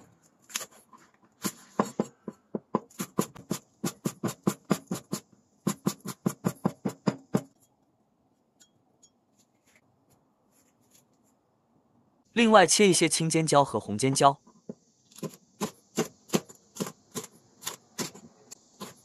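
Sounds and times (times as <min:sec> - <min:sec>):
knife chopping on wooden board: 0:01.4 - 0:07.5, 0:14.7 - 0:19.0.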